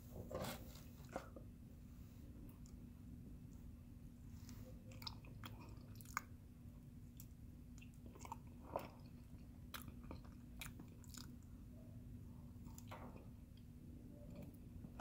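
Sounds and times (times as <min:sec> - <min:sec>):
faint steady hum: 0:00.0 - 0:15.0
person chewing: 0:04.6 - 0:06.4, 0:07.1 - 0:11.5.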